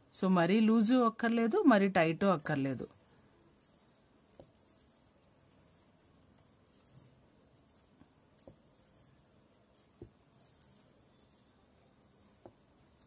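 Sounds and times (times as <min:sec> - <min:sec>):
knitting needles ticking: 0:02.3 - 0:13.0.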